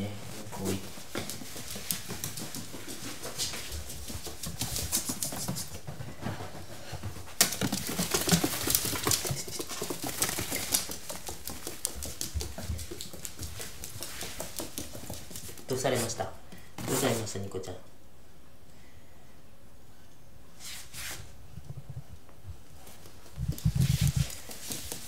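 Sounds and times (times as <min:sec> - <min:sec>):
dog claws clicking and scratching: 0:01.1 - 0:05.8, 0:07.4 - 0:15.8, 0:22.8 - 0:25.0.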